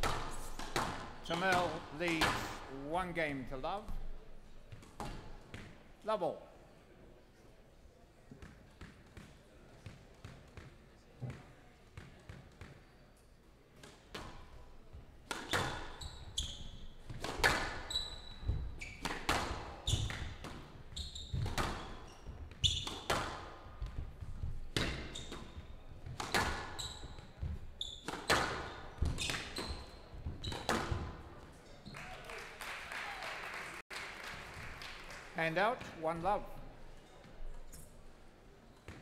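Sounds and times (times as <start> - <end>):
court shoes squeaking: 0.0 - 2.6, 8.3 - 14.6, 15.2 - 32.1, 36.9 - 39.0.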